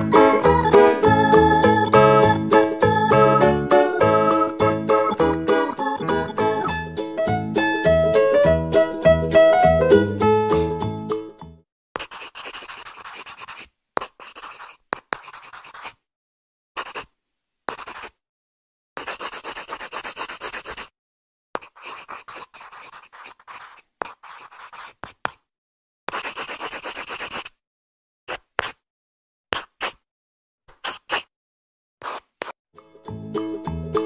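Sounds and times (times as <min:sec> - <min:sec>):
pen scratching on paper: 0:12.0 - 0:16.0, 0:16.8 - 0:17.1, 0:17.7 - 0:18.2, 0:19.0 - 0:20.9, 0:21.6 - 0:25.5, 0:26.1 - 0:27.6, 0:28.3 - 0:28.8, 0:29.5 - 0:30.0, 0:30.7 - 0:31.3, 0:32.0 - 0:32.6.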